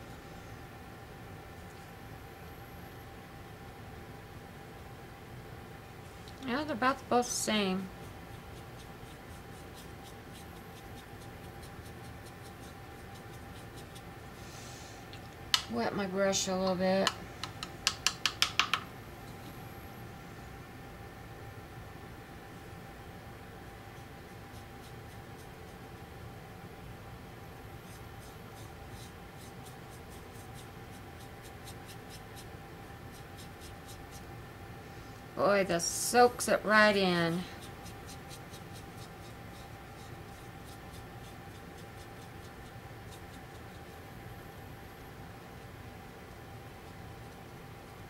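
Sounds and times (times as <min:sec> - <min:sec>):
paintbrush scratchy ticks: 0:37.6 - 0:44.0.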